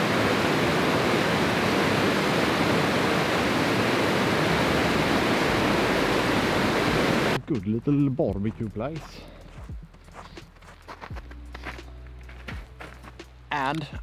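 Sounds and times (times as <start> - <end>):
stream rushing over rocks: 0.0 - 7.4.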